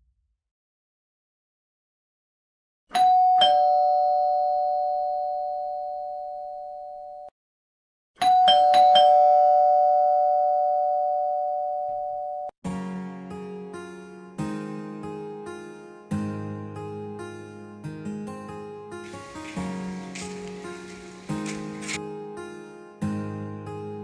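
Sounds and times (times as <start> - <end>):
two-tone ding-dong chime: 2.9 - 7.0, 8.2 - 12.5.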